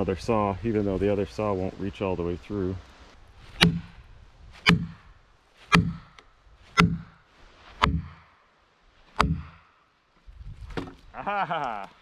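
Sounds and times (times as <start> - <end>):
wedge struck into log: 3.5 - 4.0, 4.6 - 5.1, 5.7 - 7.2, 7.8 - 8.3, 9.2 - 9.7.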